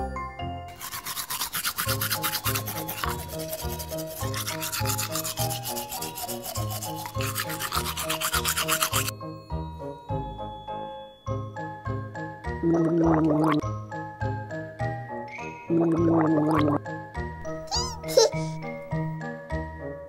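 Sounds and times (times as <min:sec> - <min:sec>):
light background melody: 0:00.0 - 0:20.0
toothbrush scrubbing teeth: 0:00.7 - 0:09.1.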